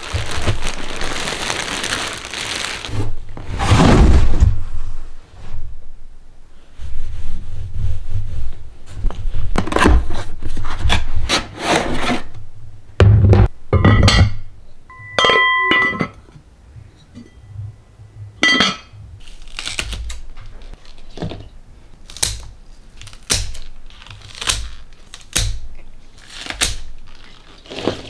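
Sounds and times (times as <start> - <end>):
pot and lid clinking: 13.8 - 16.2, 18.4 - 19.0
brief ringing tone: 14.9 - 16.0
scissors snipping onion stalks: 22.0 - 26.9.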